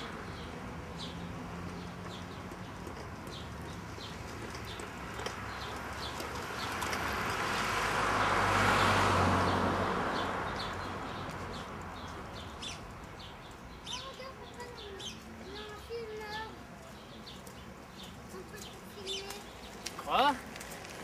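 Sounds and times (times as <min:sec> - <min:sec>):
vehicle passing by: 0:00.0 - 0:13.7
bird chirping: 0:09.5 - 0:20.2.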